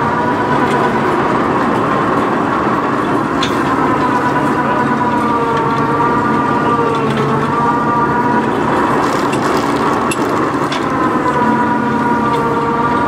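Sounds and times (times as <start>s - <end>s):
diesel engine running: 0.0s - 13.0s
winch whine: 0.0s - 13.0s.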